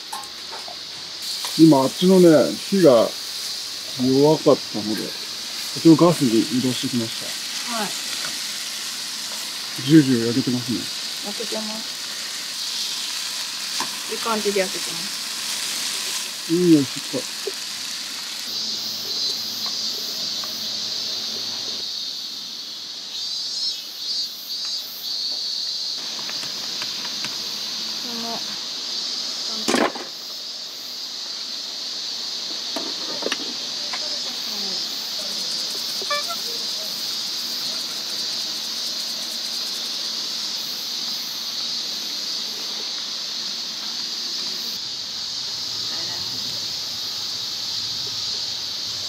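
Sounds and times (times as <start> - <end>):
cicadas droning: 0.0 - 49.0
oil sizzling in a frying pan: 0.0 - 49.0.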